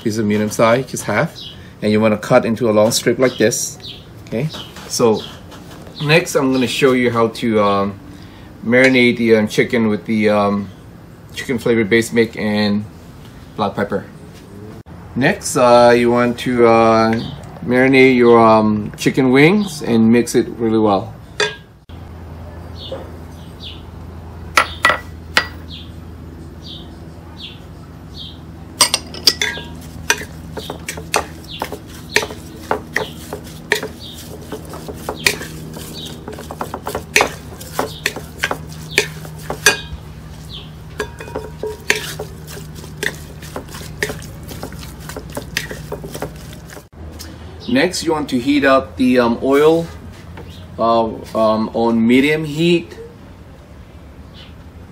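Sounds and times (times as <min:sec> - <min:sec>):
clinks against glass bowl: 0:21.4 - 0:21.7, 0:28.8 - 0:31.3, 0:38.0 - 0:40.0, 0:41.0 - 0:42.3
steady low hum: 0:21.5 - 0:47.6
chicken wings stirred in bowl: 0:29.4 - 0:46.9.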